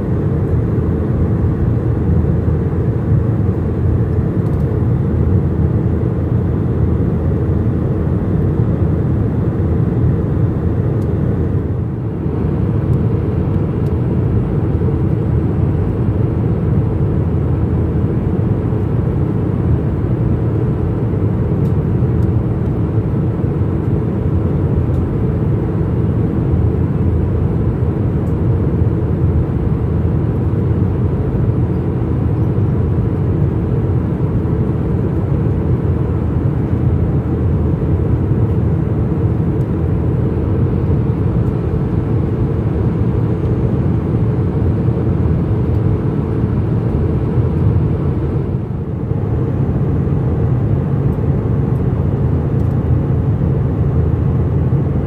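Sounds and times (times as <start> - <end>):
jet engine drone in cabin: 0.0 - 55.0.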